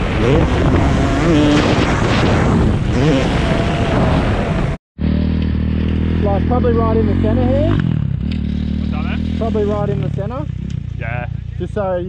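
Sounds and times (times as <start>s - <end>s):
wind rush on microphone: 0.0s - 4.8s
dirt bike engine revving: 0.0s - 11.8s
motorcycle engine idling: 5.0s - 12.0s.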